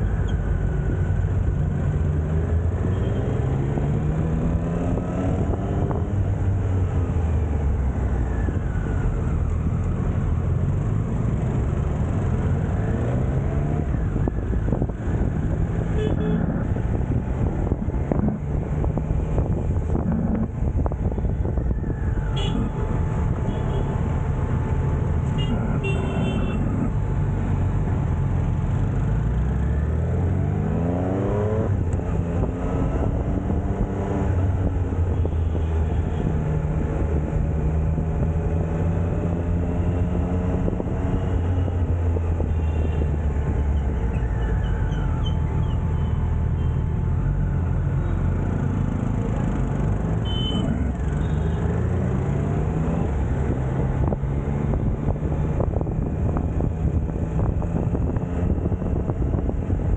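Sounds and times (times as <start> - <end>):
horn toots: 50.2 - 51.6.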